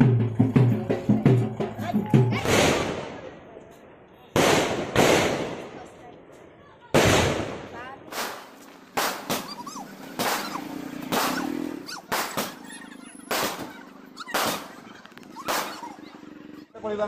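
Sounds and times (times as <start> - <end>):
fireworks bursting bangs: 2.3 - 3.4, 4.3 - 6.0, 6.9 - 16.3.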